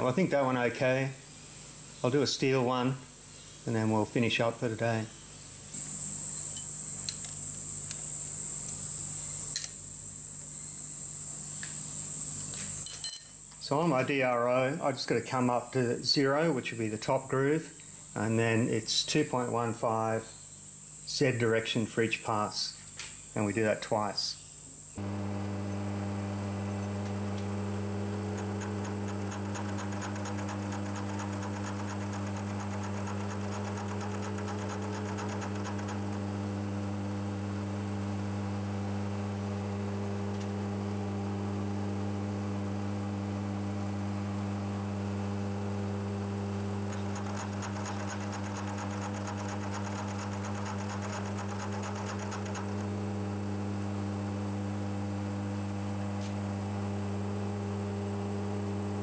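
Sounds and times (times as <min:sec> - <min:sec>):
milling machine spindle humming: 0:25.0 - 0:59.0.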